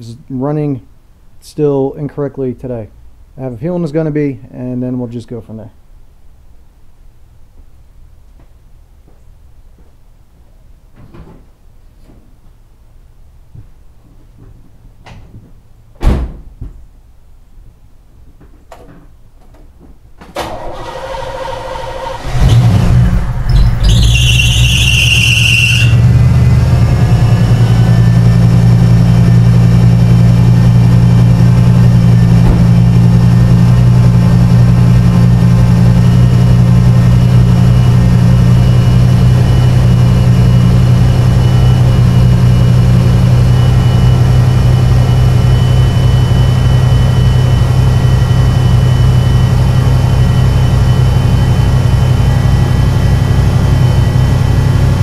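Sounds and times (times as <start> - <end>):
loud thump: 16.0 - 16.8, 32.0 - 33.6
car engine starting and idling: 20.3 - 55.0
belt squeal: 23.4 - 26.1.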